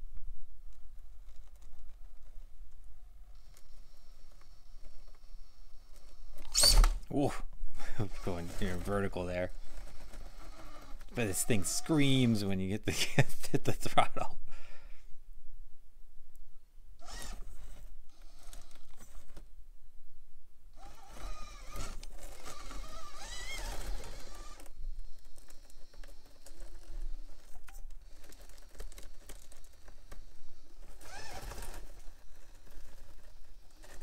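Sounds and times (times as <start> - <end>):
small electric motor whining: 3.2 - 6.9, 8.0 - 12.3, 17.0 - 19.2, 20.7 - 34.0.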